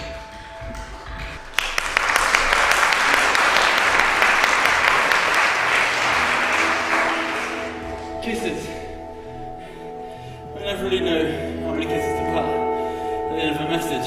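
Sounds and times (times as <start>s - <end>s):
audience applauding: 0.0s - 8.2s
music: 0.0s - 14.0s.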